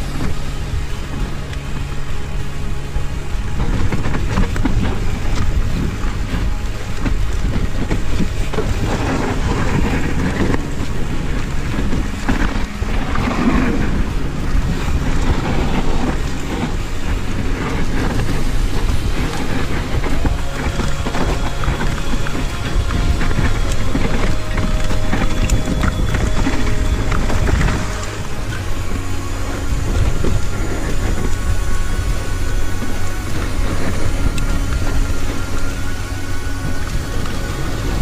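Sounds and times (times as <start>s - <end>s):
bike tyres rumbling on dirt trail: 0.0s - 38.0s
wind buffeting microphone: 0.0s - 38.0s.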